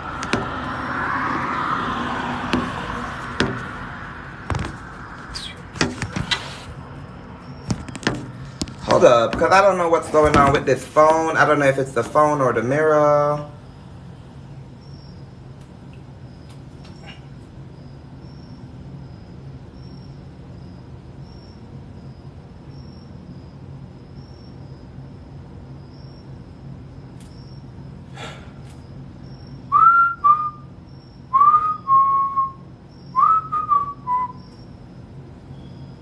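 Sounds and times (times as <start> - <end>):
steady low hum: 0.0 - 36.0
two-note whistles: 29.7 - 30.7, 31.3 - 34.7.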